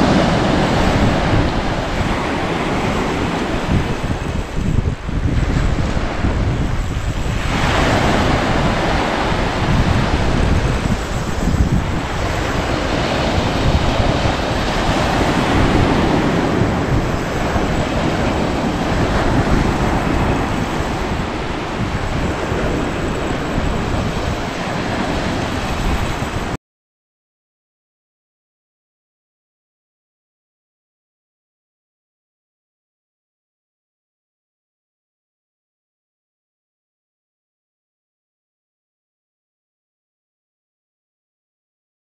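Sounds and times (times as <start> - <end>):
surf breaking on pebble beach: 0.0 - 4.6
wind buffeting microphone: 0.0 - 26.6.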